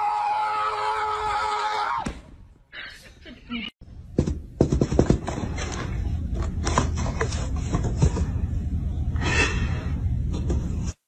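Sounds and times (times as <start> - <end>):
low steady hum: 3.0 - 11.0.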